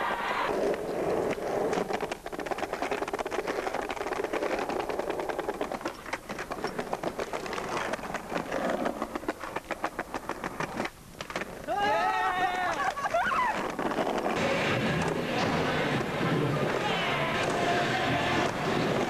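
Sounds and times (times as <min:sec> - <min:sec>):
skateboard wheels rolling over joints: 0:00.0 - 0:19.0.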